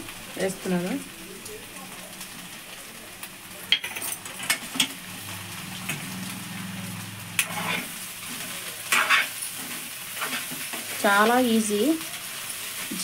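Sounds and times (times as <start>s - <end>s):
low sizzle of frying: 0.0s - 13.0s
spoon scraping metal pan: 7.4s - 10.9s.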